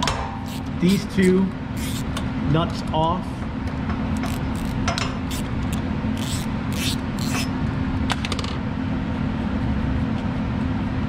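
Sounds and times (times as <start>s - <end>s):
steady low hum: 0.0s - 11.0s
ratchet wrench clicking on metal: 0.5s - 1.0s, 1.8s - 2.1s, 4.2s - 7.5s.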